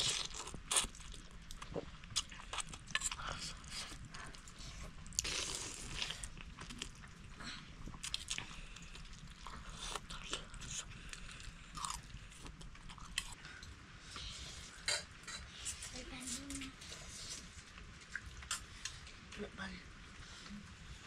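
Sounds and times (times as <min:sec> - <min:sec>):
person eating crunchy food: 0:00.0 - 0:13.7.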